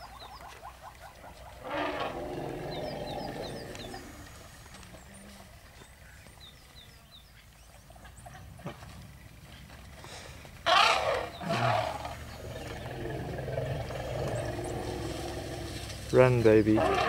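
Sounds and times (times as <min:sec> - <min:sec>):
elephant trumpeting: 0:01.6 - 0:04.2, 0:10.6 - 0:12.1, 0:16.8 - 0:17.0.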